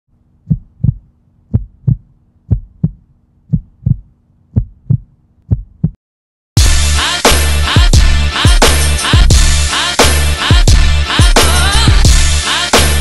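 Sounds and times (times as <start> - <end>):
heartbeat thumps: 0.4 - 6.0.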